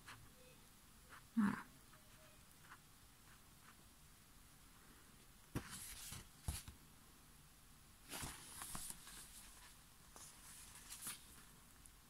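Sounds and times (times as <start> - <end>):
paper pages rustling: 5.5 - 6.8, 8.1 - 11.6.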